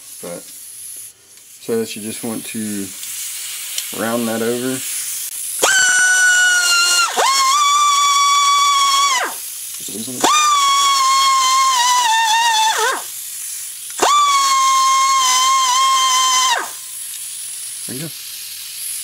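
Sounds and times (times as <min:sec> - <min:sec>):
air die grinder whining: 0:05.6 - 0:13.2, 0:14.0 - 0:16.9.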